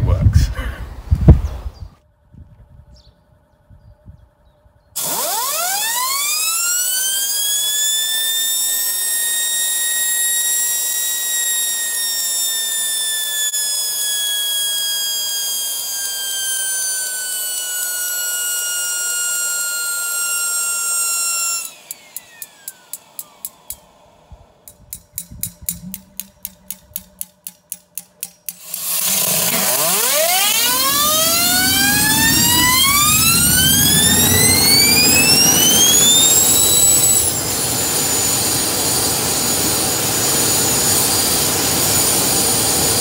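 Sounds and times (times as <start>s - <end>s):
jet engine whine: 5.0s - 27.2s, 28.6s - 43.0s
sharp clicks: 24.6s - 37.4s.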